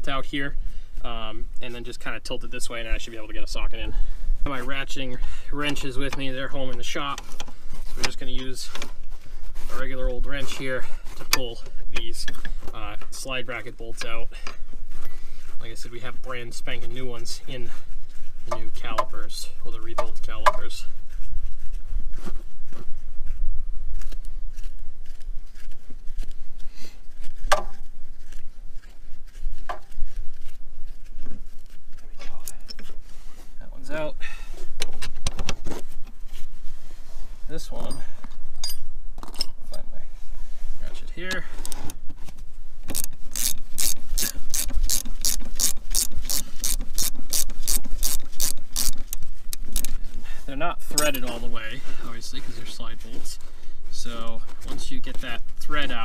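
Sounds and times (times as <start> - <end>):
wrench clicks and scrapes on metal: 42.9 - 49.9.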